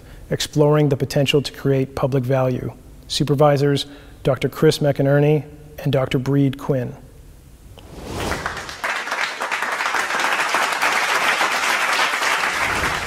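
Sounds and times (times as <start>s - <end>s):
crowd applauding: 8.3s - 13.0s.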